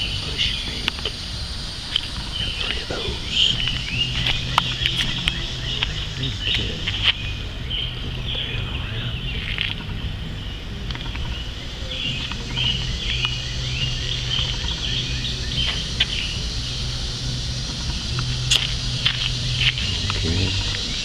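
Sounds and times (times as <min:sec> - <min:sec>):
steady low hum: 0:00.0 - 0:21.0
sharp clicks: 0:17.7 - 0:20.9.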